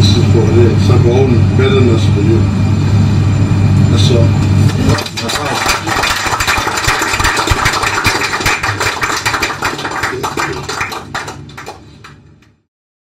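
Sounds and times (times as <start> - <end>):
group applauding: 4.8 - 12.5.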